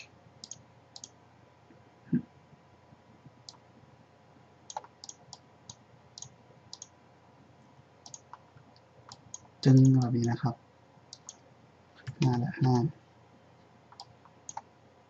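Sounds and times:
faint computer mouse clicks: 0.4 - 1.2, 4.7 - 6.9, 8.0 - 10.1, 11.1 - 11.4, 13.9 - 14.7.

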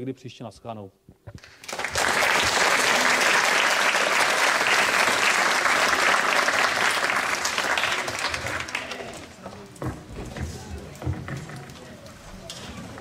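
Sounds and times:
audience applauding: 1.4 - 9.4.

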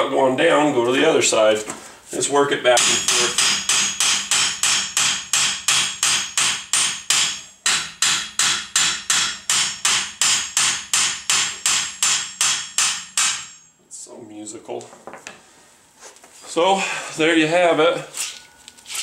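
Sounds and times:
hammer striking metal hub: 2.8 - 13.8.

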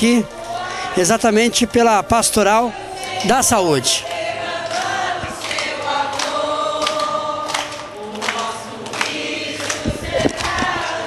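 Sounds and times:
group of people singing: 0.0 - 11.0
hand claps: 4.0 - 11.0.

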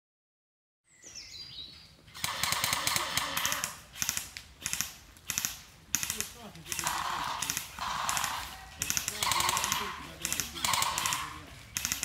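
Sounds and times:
bird chirps: 0.8 - 2.0, 10.4 - 12.0
full-auto gunfire through speaker: 2.2 - 3.8, 6.0 - 12.0.

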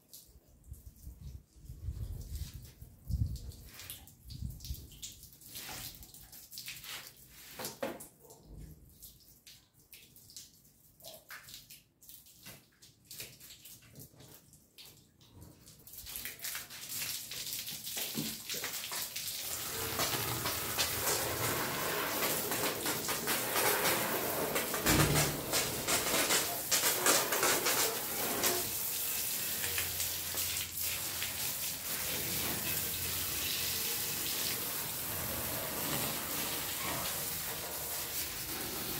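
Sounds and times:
water drips and splashes: 0.0 - 38.9
hose water spraying on metal: 15.9 - 38.9.

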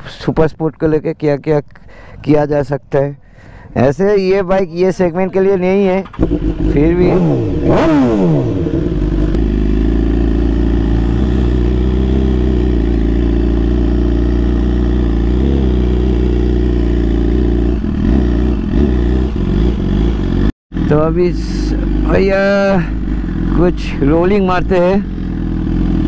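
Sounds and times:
motorcycle engine running low: 5.7 - 26.0.

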